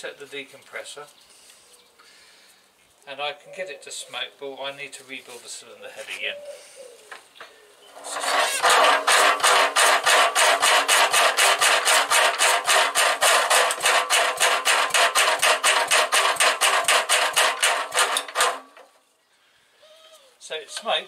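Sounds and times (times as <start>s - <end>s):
diesel engine cranking clatter: 8.0s - 19.0s.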